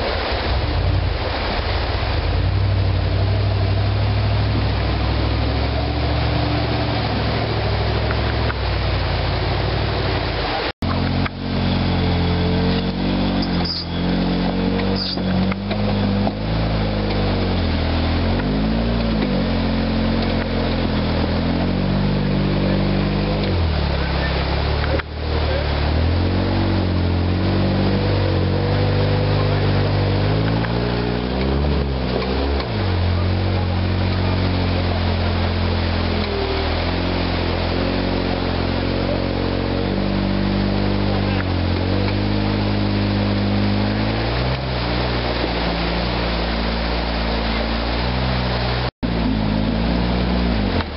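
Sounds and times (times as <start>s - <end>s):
stream cascade rushing: 0.0s - 50.9s
buggy engine revving: 2.0s - 50.9s.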